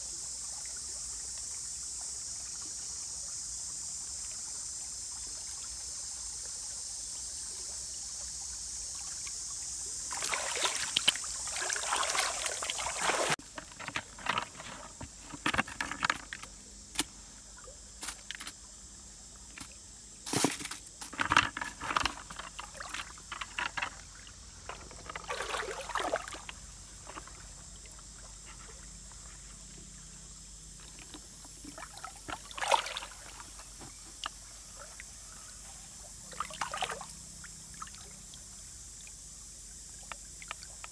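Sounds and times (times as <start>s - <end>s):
stream water trickling: 0.0s - 40.9s
small splashes: 8.9s - 14.8s, 19.6s - 30.1s, 30.8s - 35.4s, 36.2s - 38.4s
rustles and knocks from handling: 13.3s - 17.1s, 20.3s - 24.0s.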